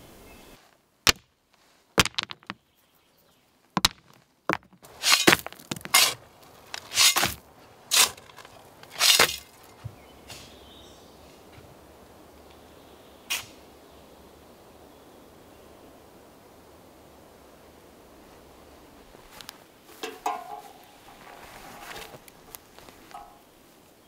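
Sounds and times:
stones knocking together: 1.1 - 1.3, 2.0 - 2.6, 3.8 - 10.0.

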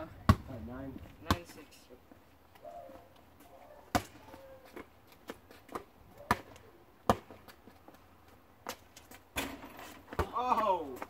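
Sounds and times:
basketball bouncing on asphalt: 0.1 - 2.2, 3.8 - 11.0.

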